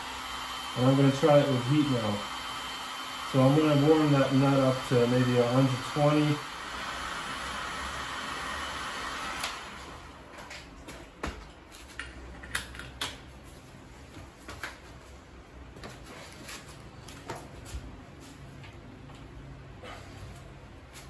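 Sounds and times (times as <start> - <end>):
heat gun hissing: 0.0 - 10.0.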